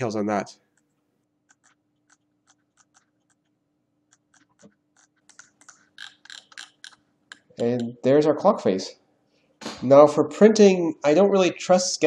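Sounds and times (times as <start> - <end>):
computer mouse clicks: 1.5 - 8.0.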